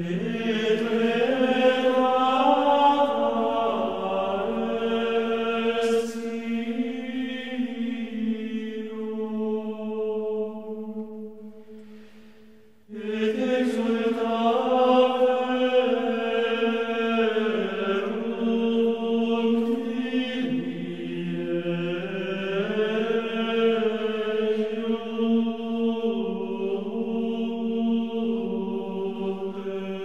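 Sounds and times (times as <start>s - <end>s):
choir chanting: 0.0s - 11.8s, 12.9s - 30.0s.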